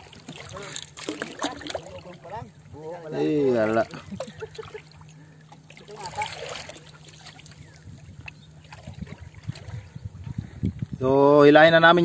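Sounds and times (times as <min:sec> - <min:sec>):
small splashes: 0:00.0 - 0:02.7, 0:03.5 - 0:10.0
water lapping against hull: 0:00.0 - 0:12.0.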